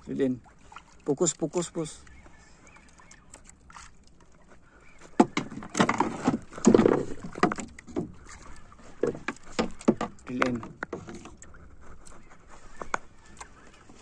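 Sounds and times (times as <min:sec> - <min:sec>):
knocks and bumps on boat: 0:05.0 - 0:11.3.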